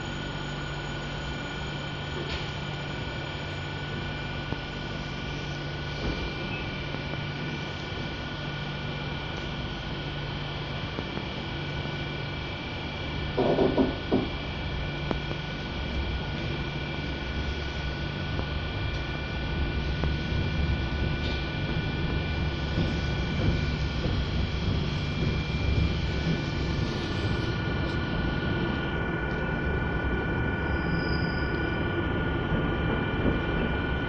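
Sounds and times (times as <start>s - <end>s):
train running hum: 0.0s - 34.0s
whining tones: 12.8s - 34.0s
low rumble: 14.0s - 34.0s.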